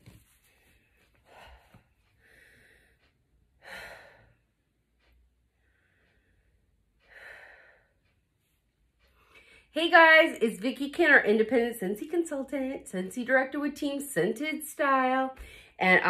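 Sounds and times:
woman breathing heavily: 0.3 - 9.7, 15.4 - 15.8.

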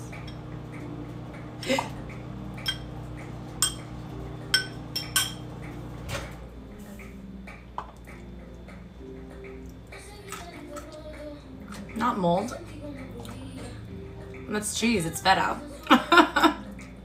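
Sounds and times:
fork clinking against glass bowl: 2.6 - 2.9, 3.6 - 3.9, 4.5 - 5.5.

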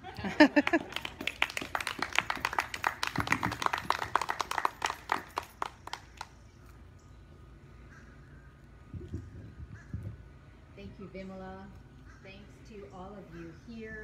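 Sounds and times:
crowd clapping: 0.3 - 6.4.

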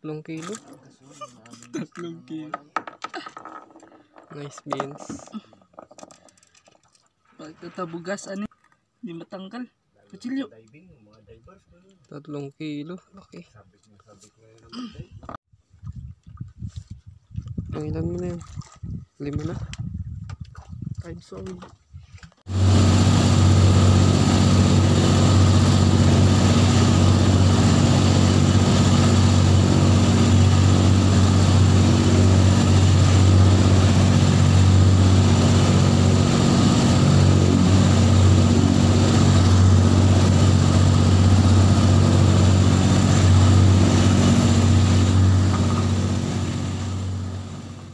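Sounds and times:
boat engine droning: 22.5 - 47.9.

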